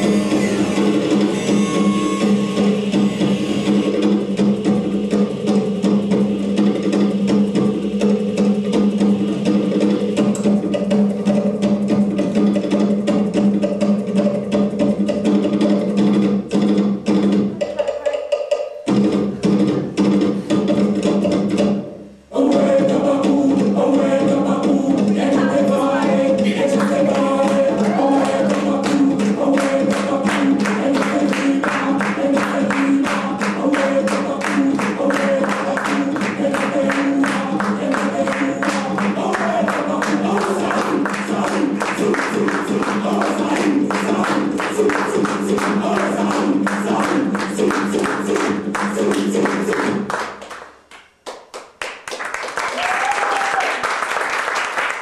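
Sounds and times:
dance music: 0:00.0 - 0:04.2, 0:22.5 - 0:50.1
quick percussion hits: 0:00.0 - 0:50.5.

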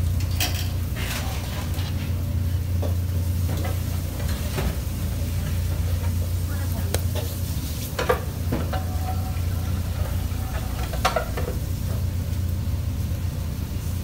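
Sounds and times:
kitchen background hum: 0:00.0 - 0:14.0.

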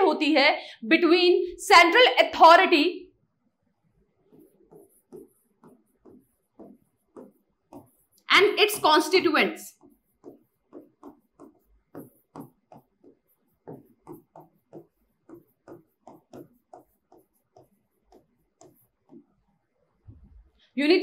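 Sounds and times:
pen tapping and scratching screen: 0:04.0 - 0:19.9.

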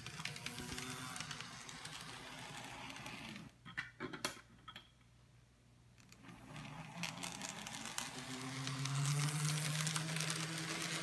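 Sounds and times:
small motor whirring: 0:00.0 - 0:03.5, 0:06.1 - 0:11.0.

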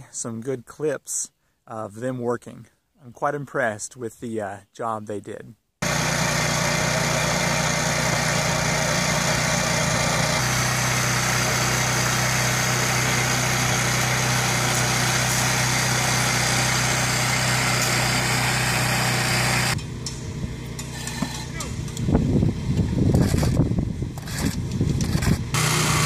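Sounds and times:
mixer churning: 0:05.8 - 0:19.8, 0:24.2 - 0:26.0
small gasoline engine running: 0:05.8 - 0:21.9, 0:22.6 - 0:26.0.

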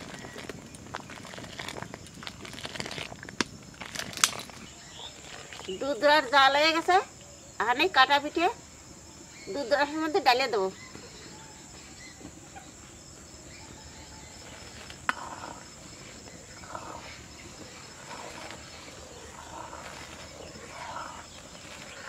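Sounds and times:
splashing and scraping in syrup: 0:00.0 - 0:05.8
high insect hum: 0:00.0 - 0:22.0.

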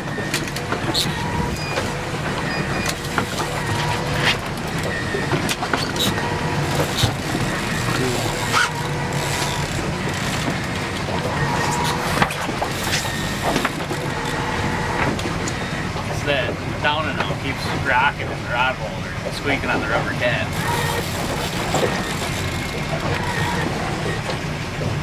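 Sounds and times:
boat engine running: 0:00.0 - 0:25.0
water noise: 0:00.0 - 0:25.0
wind: 0:00.0 - 0:25.0
rod squeaking on rubber: 0:00.9 - 0:04.4, 0:05.8 - 0:10.5, 0:11.3 - 0:15.0, 0:20.5 - 0:24.1.

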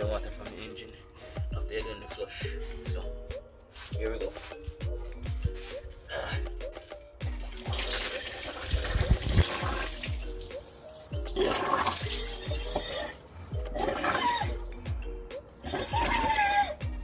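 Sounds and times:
background music beat: 0:00.0 - 0:17.0
water gushing and splashing: 0:07.4 - 0:14.9, 0:15.6 - 0:16.8.

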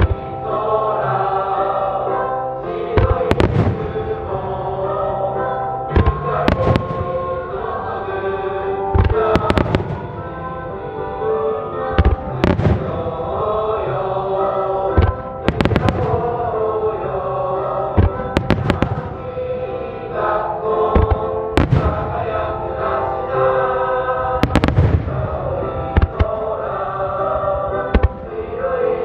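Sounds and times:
music with long held tones: 0:00.0 - 0:29.0
fireworks bursting: 0:03.0 - 0:04.2, 0:06.0 - 0:07.3, 0:09.0 - 0:10.5, 0:11.9 - 0:13.2, 0:15.0 - 0:16.7, 0:18.0 - 0:19.4, 0:21.0 - 0:22.5, 0:24.4 - 0:26.4, 0:27.8 - 0:28.2.

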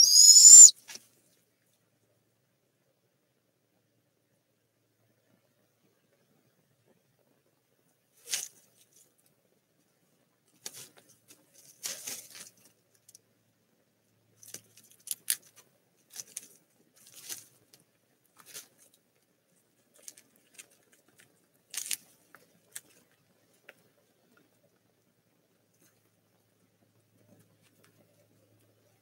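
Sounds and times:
owlets scratching in wood shavings: 0:00.0 - 0:00.7.

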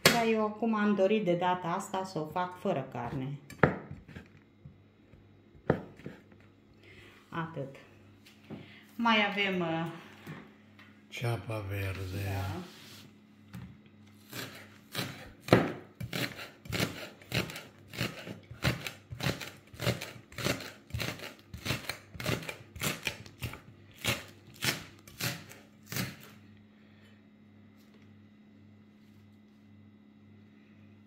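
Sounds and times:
knife chopping on wooden board: 0:03.6 - 0:04.3, 0:05.6 - 0:06.2, 0:14.3 - 0:26.3.

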